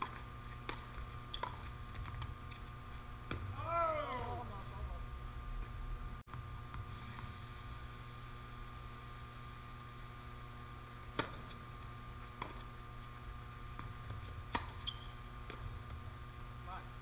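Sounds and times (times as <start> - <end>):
tennis racket hitting ball: 0.0 - 2.2, 11.1 - 11.5, 14.5 - 15.6
steady low hum: 0.0 - 17.0.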